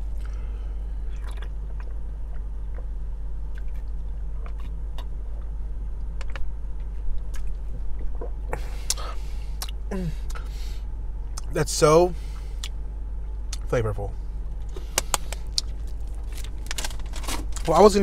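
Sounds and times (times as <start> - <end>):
person chewing burger: 0.0 - 5.6, 7.2 - 10.5, 14.6 - 17.6
low hum inside car: 0.0 - 18.0
wrapper crinkling: 15.3 - 17.7.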